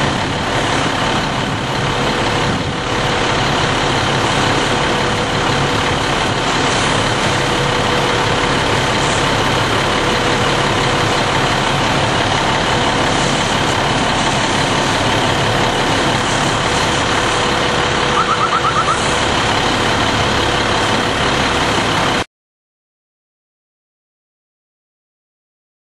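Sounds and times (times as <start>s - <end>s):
truck engine idling: 0.0s - 22.3s
short beeps: 18.1s - 19.0s.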